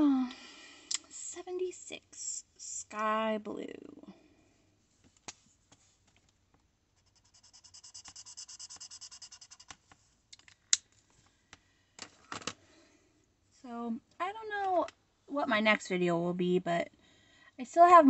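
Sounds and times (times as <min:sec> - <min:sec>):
marker scrubbing on paper: 0:07.0 - 0:09.8.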